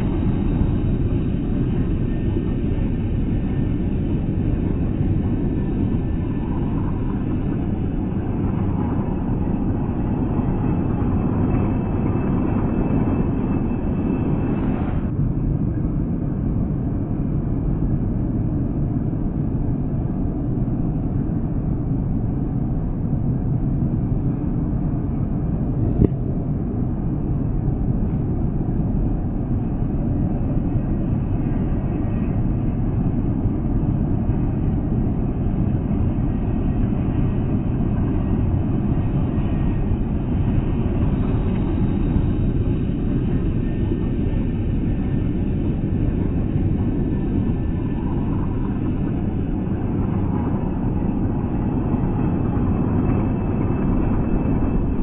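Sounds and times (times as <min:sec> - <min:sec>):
highway traffic rumble: 0:30.9 - 0:55.0.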